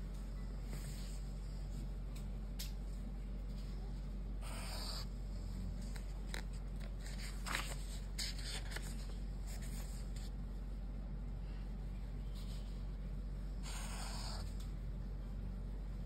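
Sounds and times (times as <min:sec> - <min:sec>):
steady low hum: 0:00.0 - 0:16.0
book page turning: 0:05.8 - 0:10.3.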